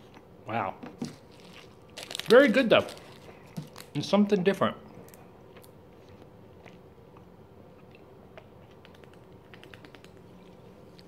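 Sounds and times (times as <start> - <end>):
soft chewing clicks: 5.5 - 11.0.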